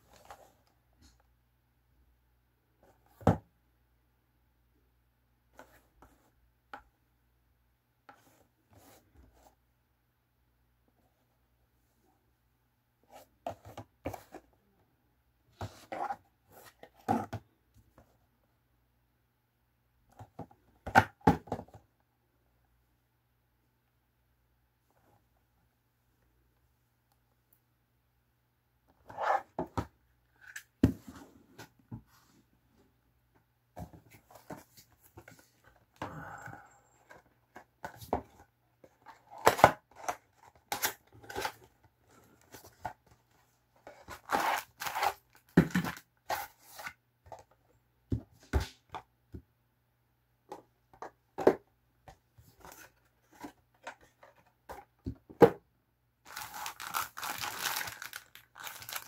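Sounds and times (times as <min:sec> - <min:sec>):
plastic bag crinkling: 0:56.3 - 0:59.0.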